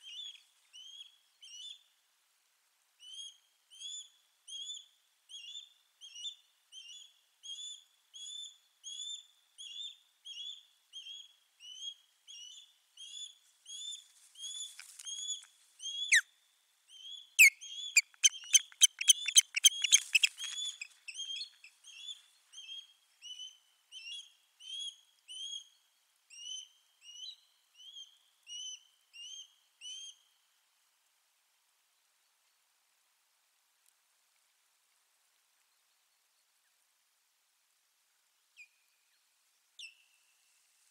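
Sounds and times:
osprey whistled alarm calls: 0:16.9 - 0:25.7.

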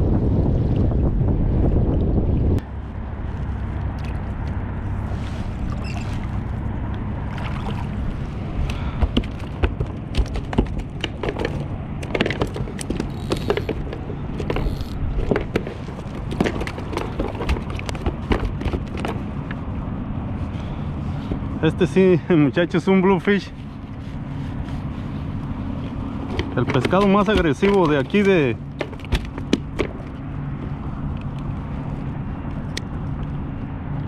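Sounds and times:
wind rumble on microphone: 0:00.0 - 0:34.0
clicks and knocks on plastic: 0:09.0 - 0:19.2, 0:26.3 - 0:30.1.

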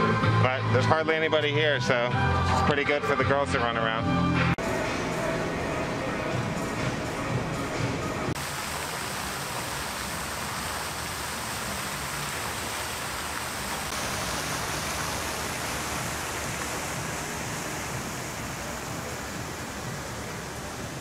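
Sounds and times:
fountain water splashing: 0:08.3 - 0:21.0.

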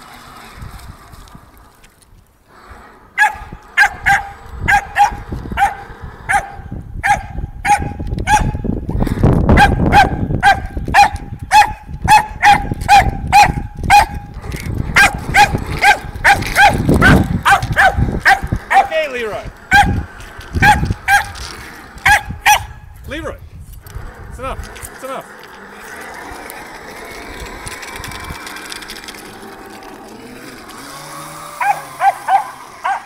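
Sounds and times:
small dog barking: 0:03.2 - 0:08.6, 0:09.6 - 0:14.2, 0:22.1 - 0:22.7, 0:31.6 - 0:33.0.

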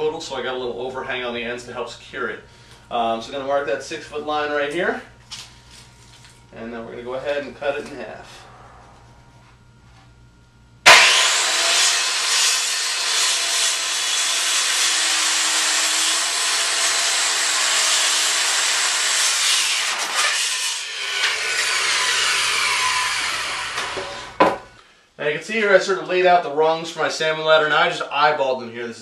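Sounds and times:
power saw cutting wood: 0:10.9 - 0:24.6.

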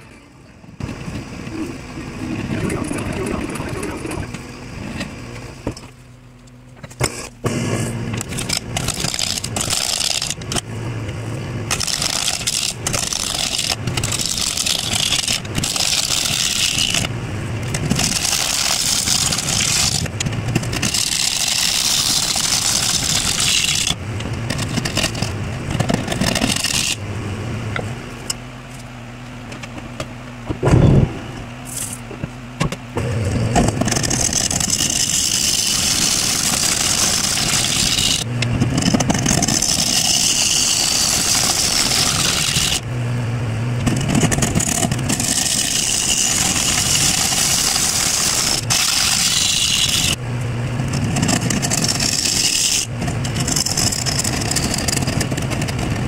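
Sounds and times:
gouge cutting wood on lathe: 0:08.2 - 0:10.6, 0:11.7 - 0:17.1, 0:17.7 - 0:27.0, 0:33.0 - 0:42.9, 0:44.2 - 0:50.2, 0:51.1 - 0:55.8
lathe motor hum: 0:33.0 - 0:56.0.

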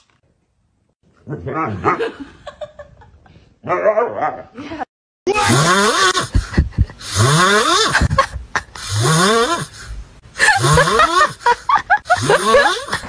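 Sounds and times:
puppy snoring: 0:07.0 - 0:08.1.

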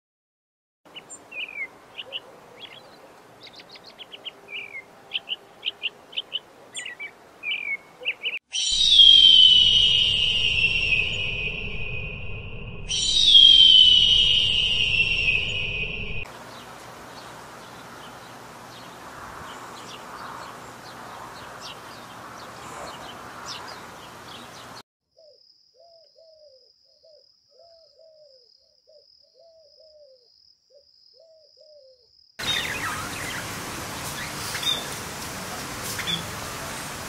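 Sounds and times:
small birds chirping: 0:00.9 - 0:08.4, 0:15.1 - 0:37.0
steady outdoor hiss: 0:00.9 - 0:08.4, 0:13.7 - 0:24.8, 0:32.4 - 0:37.0
budgerigars chirping: 0:16.5 - 0:24.8, 0:32.4 - 0:35.0, 0:35.9 - 0:36.4
pigeons cooing: 0:17.8 - 0:24.5.

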